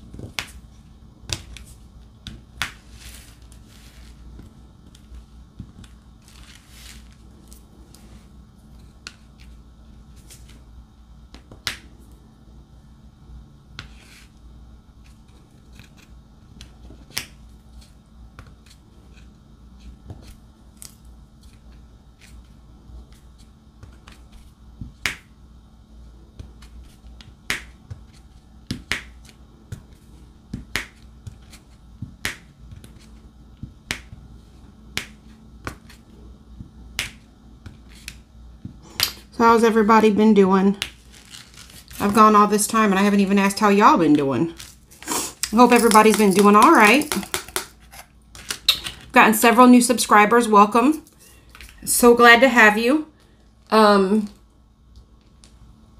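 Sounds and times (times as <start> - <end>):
pen tapping sharp clicks: 45.4 - 47.7.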